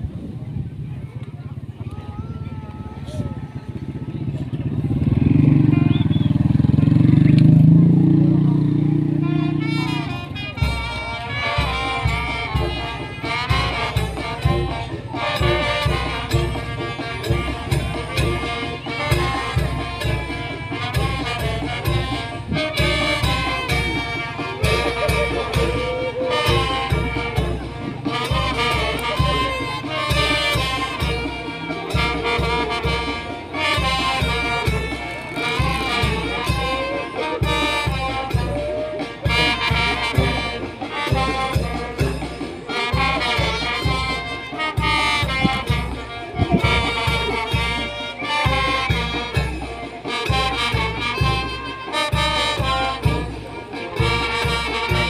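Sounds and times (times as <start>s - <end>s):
trumpets and trombones melody: 2.3s - 55.0s
steady bass beat: 4.0s - 31.3s, 44.8s - 47.7s.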